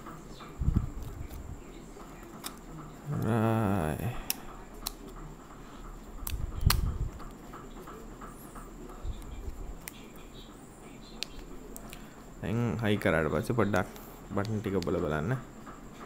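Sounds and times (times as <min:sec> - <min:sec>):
person humming: 0:03.1 - 0:04.4.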